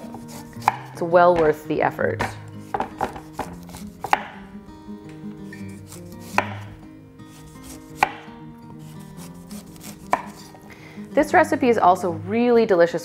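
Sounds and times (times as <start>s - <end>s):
knife cutting on wooden board: 0.0s - 1.6s, 2.2s - 4.5s, 5.5s - 8.3s, 8.9s - 10.6s.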